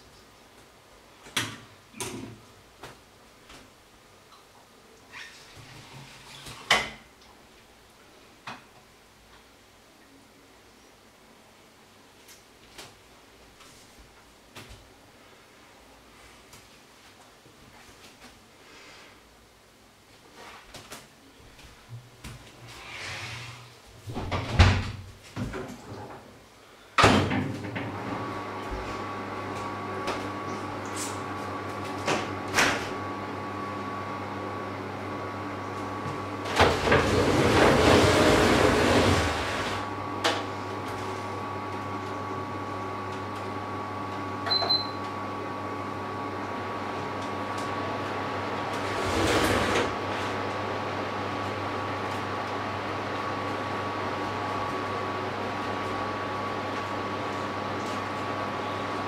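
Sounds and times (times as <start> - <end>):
kitchen appliance humming: 27.4 - 59.0
rush of noise at sink: 36.5 - 40.0.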